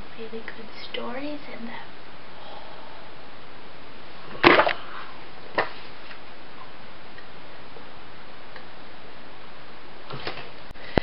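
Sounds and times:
background hiss: 0:00.0 - 0:11.0
books knocking: 0:04.3 - 0:04.8.

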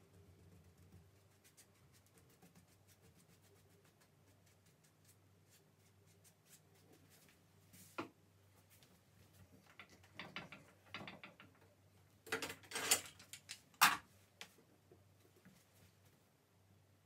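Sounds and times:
metal clamp clicking and rattling: 0:12.3 - 0:14.0.

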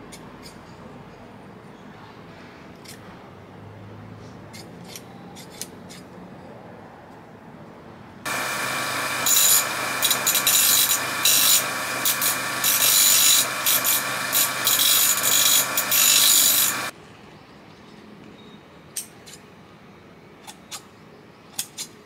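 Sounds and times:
electric grinder motor whine: 0:08.3 - 0:16.9
steel grinding on wheel: 0:08.3 - 0:16.9.

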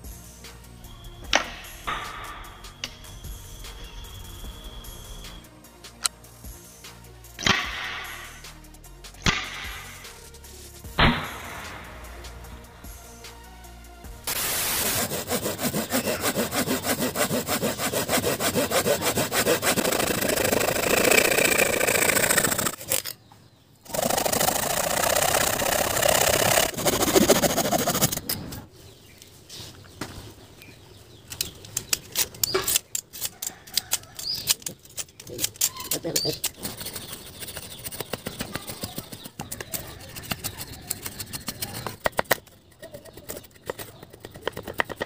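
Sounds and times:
hand saw cutting branch: 0:14.3 - 0:23.1, 0:23.9 - 0:28.4, 0:31.9 - 0:45.0
knife scraping bark: 0:14.3 - 0:23.2, 0:23.9 - 0:28.6, 0:31.6 - 0:45.0.

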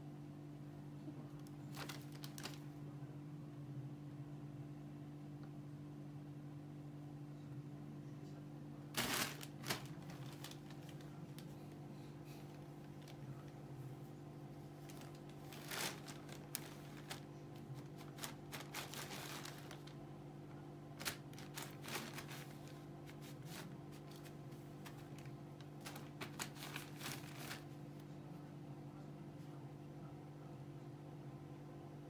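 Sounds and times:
steady low hum: 0:00.0 - 0:32.0
plastic bag rustling: 0:01.4 - 0:02.7, 0:08.9 - 0:11.7, 0:14.7 - 0:20.0, 0:21.0 - 0:27.8.

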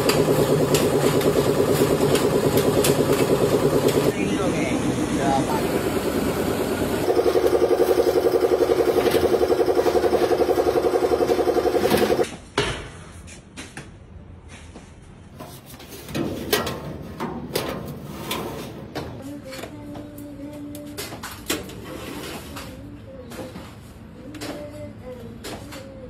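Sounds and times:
machine pulsing: 0:00.0 - 0:12.2.

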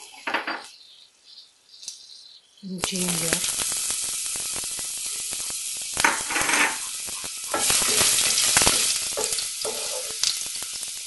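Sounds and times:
spices sizzling in hot oil: 0:00.0 - 0:11.0
wooden spoon stirring: 0:07.5 - 0:10.3.

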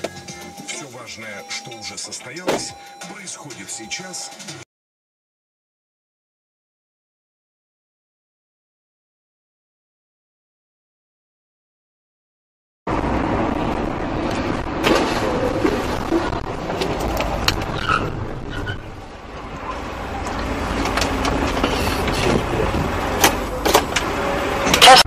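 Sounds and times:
road and engine noise in car: 0:00.0 - 0:04.6, 0:12.9 - 0:25.0
sharp clicks and knocks: 0:20.2 - 0:22.5.

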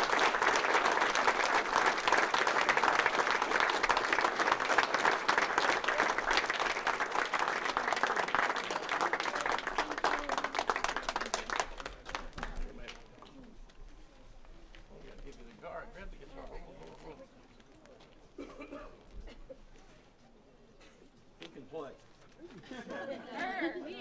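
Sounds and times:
crowd applauding: 0:00.0 - 0:13.0.

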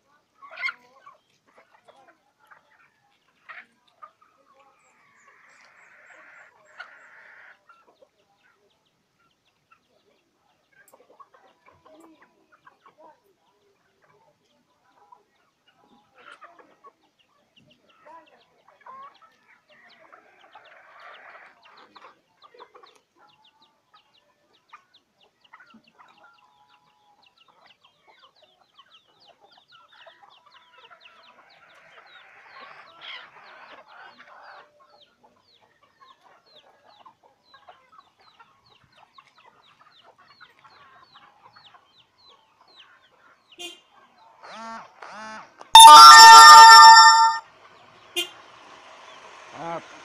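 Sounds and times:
chickens clucking softly: 0:00.0 - 0:29.6
faint rapid high chirping: 0:45.8 - 0:47.4.

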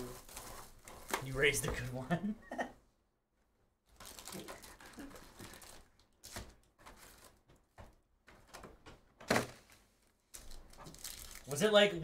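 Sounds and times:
plastic wrap crinkling: 0:00.0 - 0:01.6, 0:03.9 - 0:07.7, 0:09.6 - 0:11.8.

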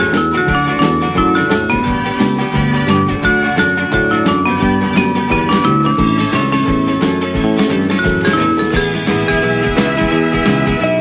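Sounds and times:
drum beat: 0:00.0 - 0:11.0
held melody notes: 0:00.0 - 0:11.0.

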